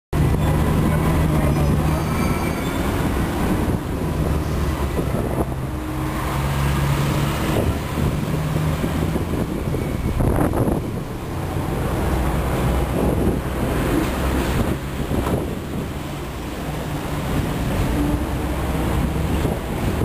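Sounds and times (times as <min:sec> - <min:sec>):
tram wheels rumbling on rails: 0:00.2 - 0:20.0.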